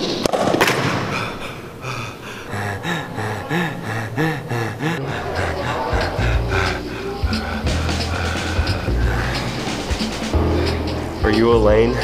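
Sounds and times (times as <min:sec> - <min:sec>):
man panting: 0:00.8 - 0:11.2
soft background music: 0:05.6 - 0:12.0.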